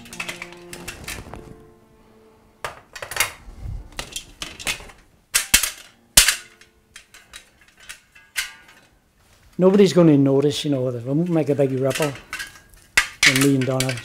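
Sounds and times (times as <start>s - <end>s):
metal film reels clanking: 0.0s - 1.4s, 4.0s - 9.0s, 10.8s - 14.0s.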